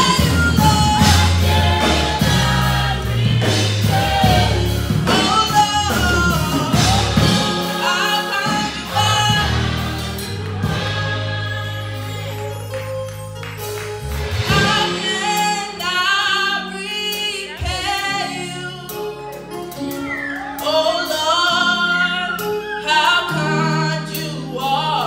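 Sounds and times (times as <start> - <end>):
woman singing into a microphone: 14.6 - 19.1.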